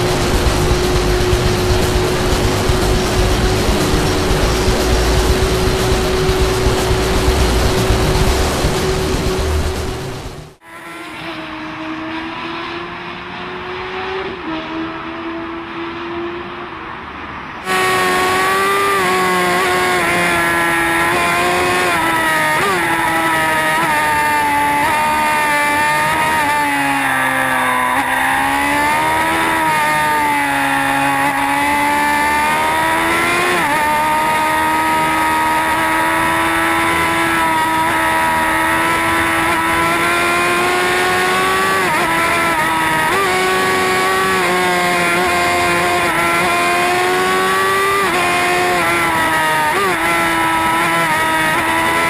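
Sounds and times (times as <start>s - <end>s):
wind rush: 0.0s - 10.6s
motorcycle engine at high revs: 0.0s - 16.5s, 17.6s - 52.0s.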